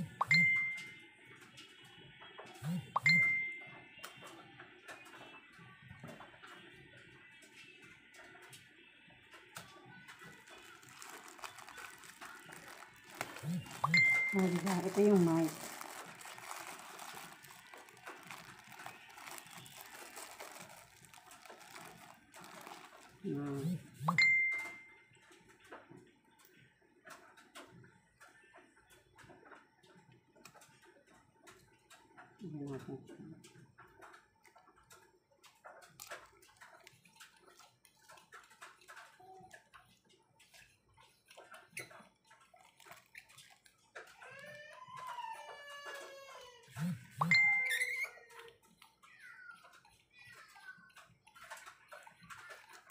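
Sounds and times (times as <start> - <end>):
faint rustling and crinkling: 9.4 - 24.7, 29.2 - 47.3
small plastic parts clicking: 9.6 - 23.3, 33.4 - 45.2.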